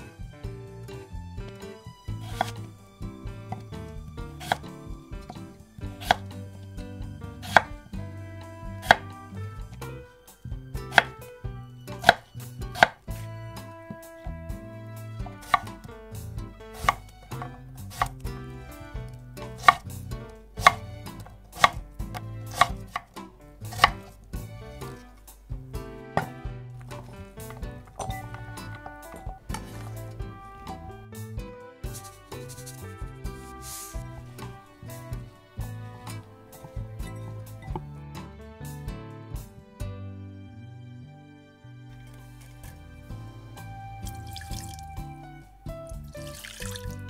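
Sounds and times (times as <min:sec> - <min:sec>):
knife chopping on cutting board: 0:02.2 - 0:02.7, 0:03.4 - 0:06.4, 0:07.3 - 0:07.8, 0:08.6 - 0:09.9, 0:10.8 - 0:13.2, 0:15.2 - 0:15.9, 0:16.7 - 0:18.2, 0:19.4 - 0:20.0, 0:20.6 - 0:25.0, 0:26.2 - 0:30.9, 0:31.8 - 0:35.2.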